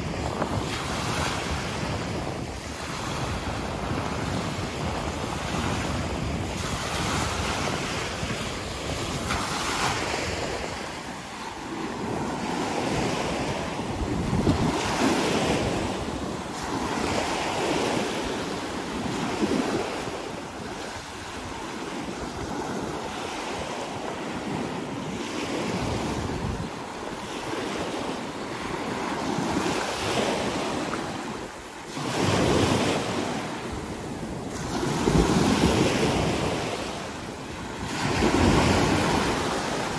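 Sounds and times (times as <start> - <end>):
small waves breaking on sand: 0.0 - 39.9
wind rumbling on microphone: 0.0 - 39.9.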